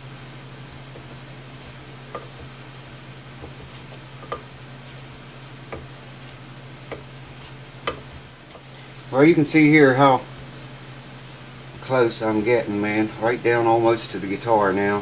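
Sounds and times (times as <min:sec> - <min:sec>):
air conditioner hum: 0:00.0 - 0:15.0
chisel paring wood: 0:02.1 - 0:02.5, 0:03.4 - 0:04.5, 0:05.7 - 0:06.0, 0:06.9 - 0:08.1.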